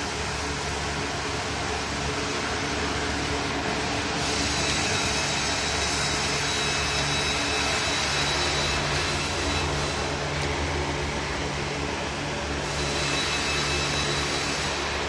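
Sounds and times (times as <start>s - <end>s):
workshop machine hissing: 0.0s - 15.0s
thin high whine: 3.2s - 15.0s.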